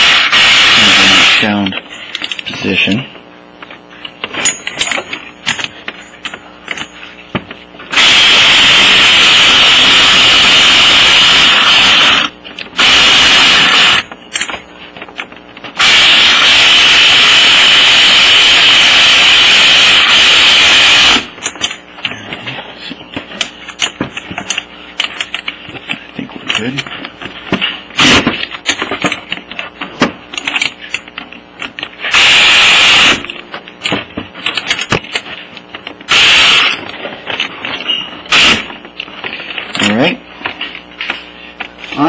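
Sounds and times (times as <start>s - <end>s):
power drill driving bolts: 7.9s - 14.1s, 36.1s - 36.8s, 38.3s - 38.7s.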